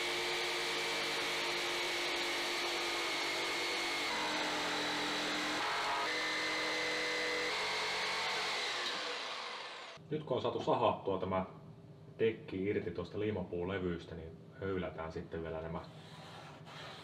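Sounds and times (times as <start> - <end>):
jigsaw cutting wood: 0.0 - 10.0.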